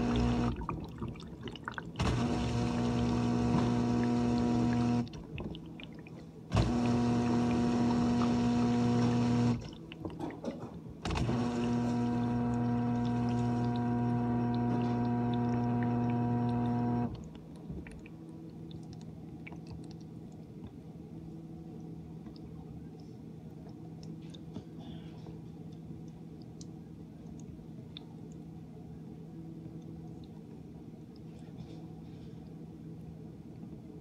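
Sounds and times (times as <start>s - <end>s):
dishwasher pump motor humming: 0.0s - 0.7s, 2.0s - 5.3s, 6.5s - 9.8s, 11.0s - 17.2s
water swishing: 0.0s - 10.2s, 11.2s - 18.2s.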